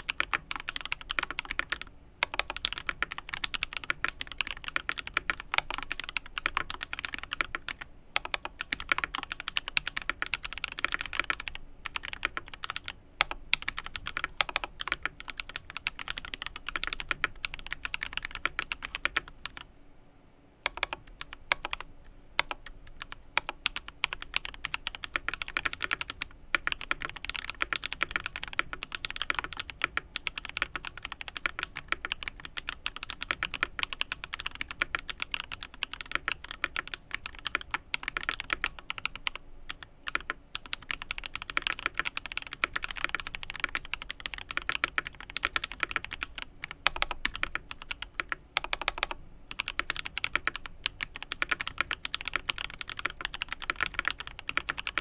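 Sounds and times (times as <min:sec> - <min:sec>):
typing on mechanical keyboard: 0:00.0 - 0:19.7, 0:20.7 - 0:55.0.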